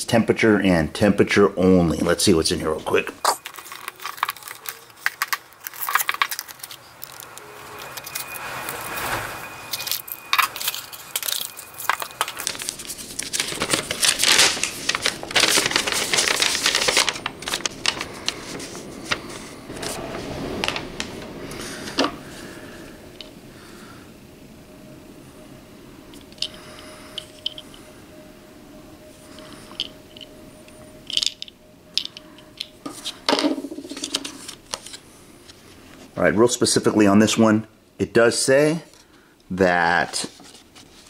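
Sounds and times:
paper sheet rustling: 2.7s - 22.6s, 32.8s - 35.9s, 40.1s - 41.0s
cardboard box being opened: 3.4s - 9.1s.

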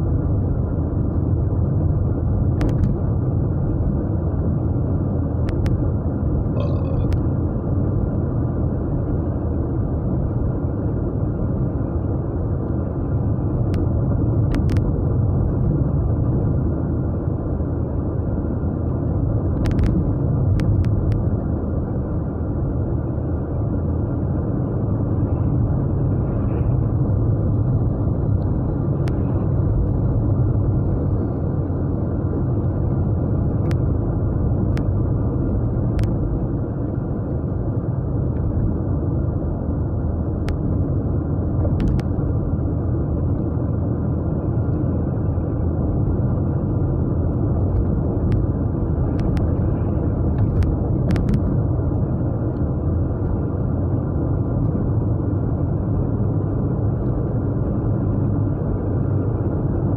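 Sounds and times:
car engine and tyre drone: 0.0s - 59.9s.

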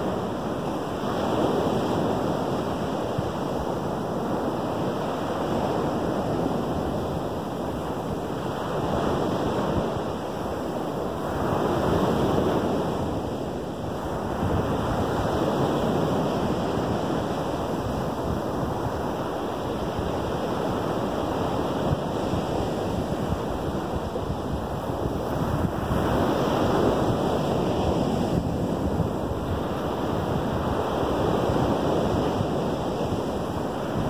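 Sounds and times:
surf breaking on sandy beach: 4.4s - 34.0s.

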